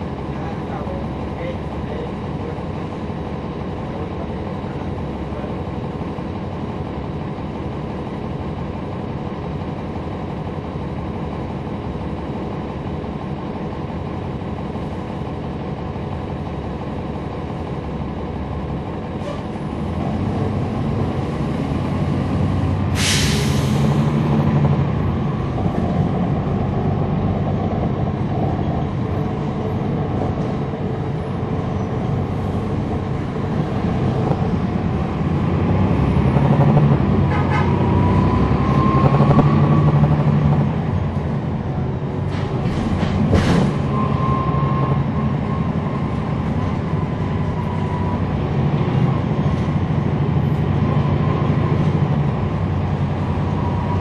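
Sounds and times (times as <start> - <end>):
bus diesel engine running: 0.0 - 54.0
air hiss burst: 22.9 - 23.8.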